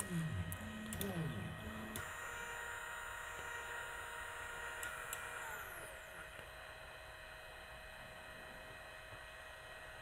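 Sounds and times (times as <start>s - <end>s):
stepper motor whine: 0.0s - 10.0s.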